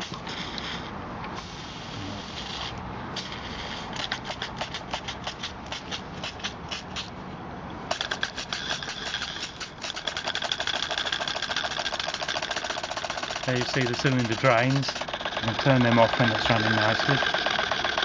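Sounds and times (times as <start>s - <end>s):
steam hissing: 0.0s - 5.9s
model steam engine exhaust beat: 0.0s - 7.1s, 7.9s - 18.0s.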